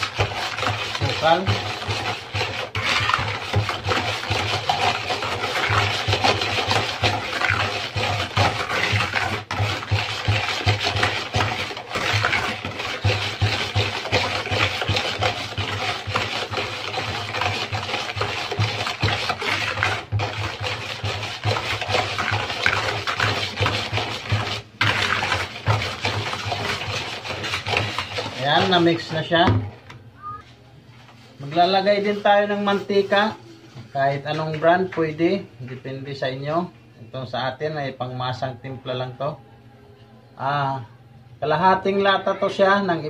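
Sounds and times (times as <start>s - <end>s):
wire whisk scraping a plastic bowl: 0.0s - 29.5s, 31.1s - 35.4s.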